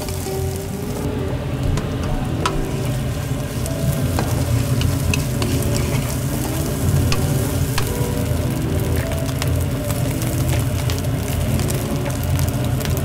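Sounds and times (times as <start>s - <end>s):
chicken sizzling in oil: 0.0s - 13.0s.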